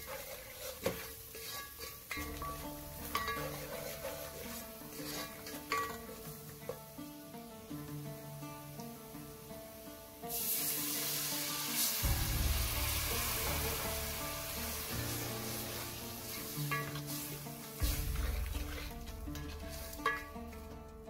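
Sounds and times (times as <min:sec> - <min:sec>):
wooden spoon stirring: 0:00.0 - 0:06.9, 0:13.1 - 0:21.0
oil sizzling in a pot: 0:00.0 - 0:21.0.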